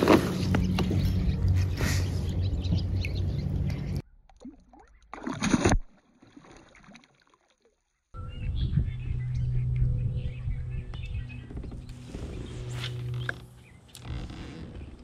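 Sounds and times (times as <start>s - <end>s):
water and handling noise: 0.0s - 8.0s
fish splashing water: 4.3s - 7.8s
low hum: 8.2s - 15.0s.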